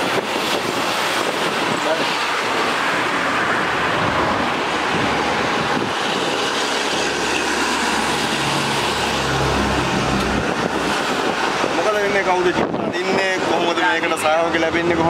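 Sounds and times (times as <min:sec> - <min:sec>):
road traffic rushing: 0:00.0 - 0:15.0
low engine drone: 0:02.2 - 0:11.9.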